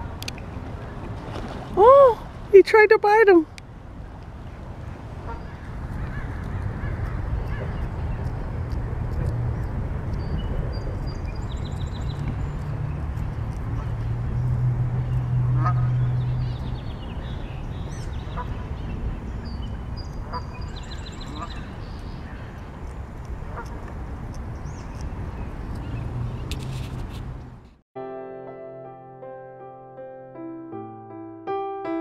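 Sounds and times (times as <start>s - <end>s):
steady low rumble: 3.5s - 26.2s
geese calling: 15.5s - 16.0s, 17.9s - 18.6s, 20.3s - 22.6s, 23.5s - 23.8s.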